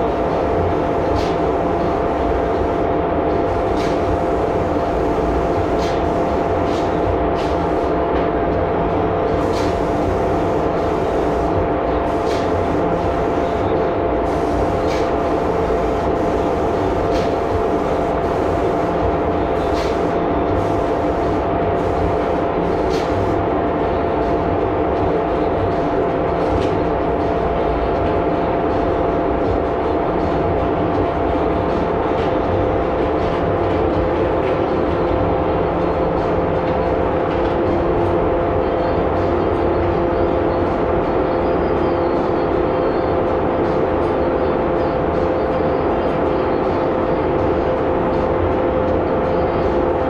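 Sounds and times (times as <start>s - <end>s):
machinery drone with hum tones: 0.0s - 50.0s.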